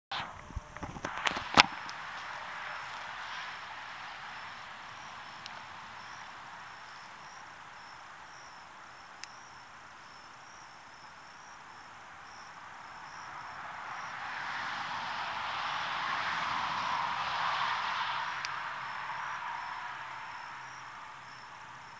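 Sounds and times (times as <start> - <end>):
steady hiss: 0.1 - 21.9
insects chirping in pulsing trill: 0.3 - 21.9.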